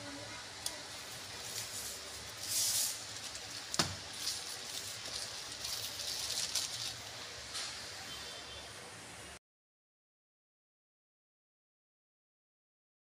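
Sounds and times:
plastic wrap rustling and crinkling: 0.7s - 7.5s.

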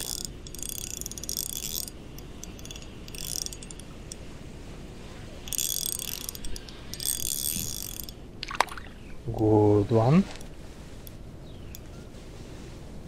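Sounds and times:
fishing reel clicking: 0.0s - 3.9s, 5.5s - 8.2s.

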